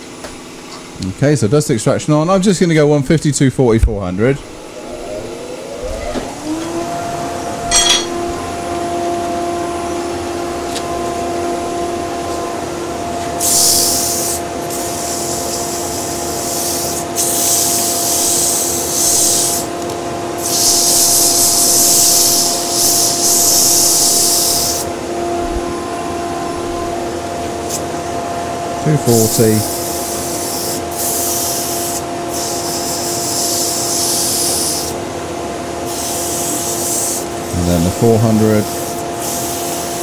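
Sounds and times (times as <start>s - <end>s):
lathe and dust extractor humming: 4.0s - 40.0s
sanding hiss: 13.4s - 19.7s, 20.4s - 24.9s, 29.1s - 35.0s, 35.9s - 37.3s, 38.6s - 40.0s.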